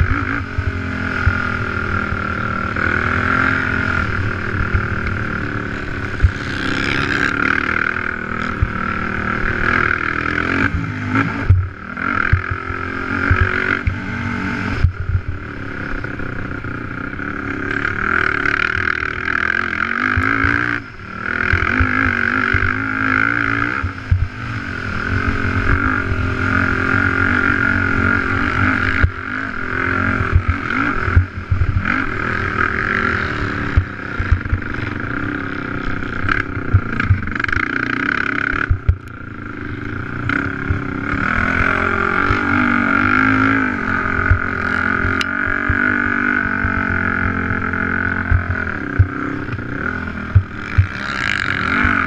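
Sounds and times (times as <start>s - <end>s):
atv engine revving: 0.0s - 52.0s.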